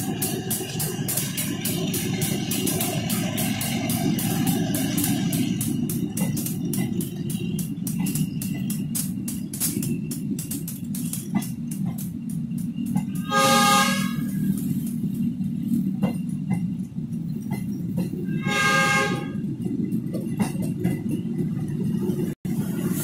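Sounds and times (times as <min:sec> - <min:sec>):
train rumbling: 0:00.0 - 0:23.0
wheels clicking over rail joints: 0:00.0 - 0:23.0
train horn blasts: 0:13.0 - 0:14.6, 0:18.2 - 0:19.5.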